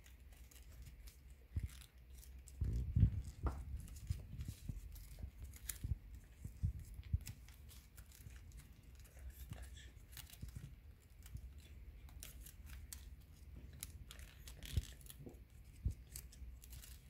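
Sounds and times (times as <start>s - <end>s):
paper rustling and crinkling: 0.0s - 17.0s
soft low thumps: 2.6s - 7.4s.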